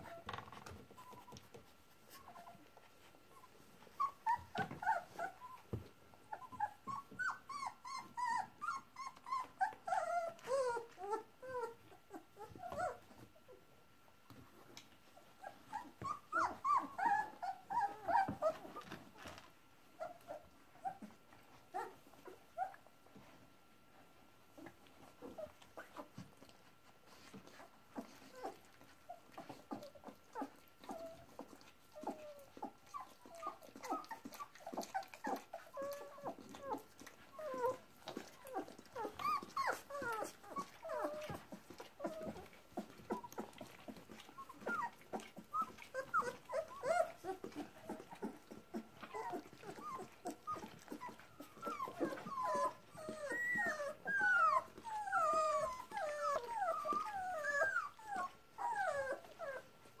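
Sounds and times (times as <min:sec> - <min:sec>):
puppies squeaking and whimpering: 0:03.4 - 0:05.7, 0:06.3 - 0:13.0, 0:15.4 - 0:19.4, 0:27.1 - 0:59.7.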